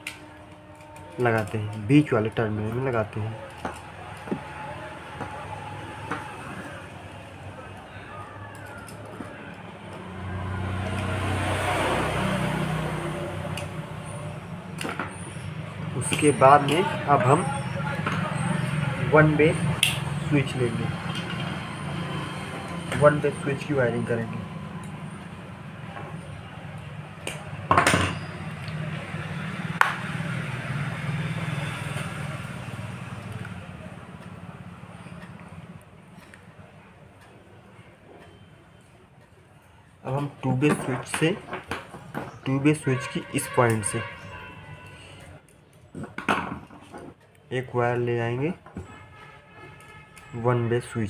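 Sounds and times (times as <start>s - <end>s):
motor vehicle passing by: 3.8s - 36.1s.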